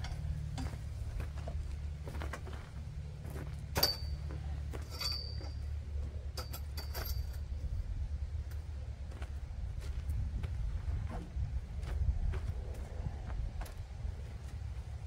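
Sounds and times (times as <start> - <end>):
steady low hum: 0.0 - 15.0
metal parts clinking: 3.7 - 7.5.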